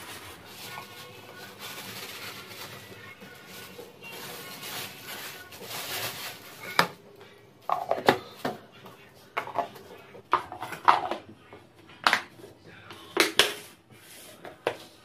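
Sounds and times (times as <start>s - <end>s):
plastic bag rustling: 0.0s - 8.7s
plastic containers clacking: 7.7s - 8.6s, 9.4s - 11.3s.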